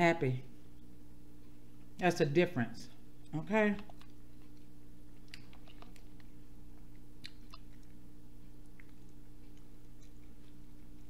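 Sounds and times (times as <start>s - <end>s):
steady low hum: 0.0s - 11.0s
chewing: 3.2s - 11.0s
fingers picking through seafood: 3.8s - 11.0s.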